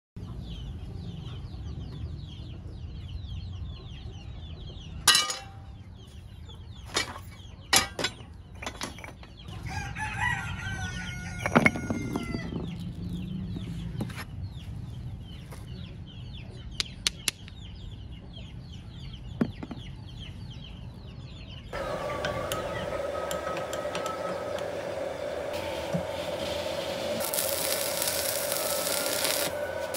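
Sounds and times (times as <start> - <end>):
rooster crowing: 9.6 - 12.5, 21.8 - 26.4
chickens clucking: 21.5 - 26.4
machine hum: 21.8 - 29.9.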